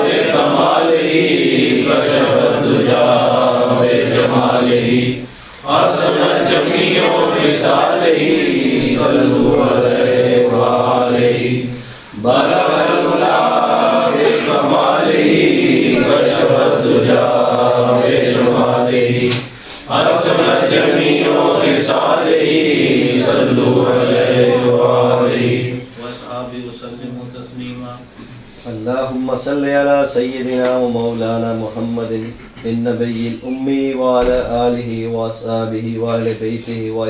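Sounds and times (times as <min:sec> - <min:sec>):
men chanting together: 0:00.0 - 0:27.4.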